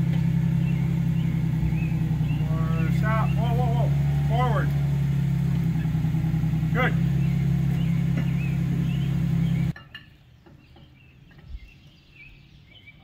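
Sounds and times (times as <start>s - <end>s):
truck engine idling: 0.0s - 9.8s
birds chirping: 0.0s - 13.0s.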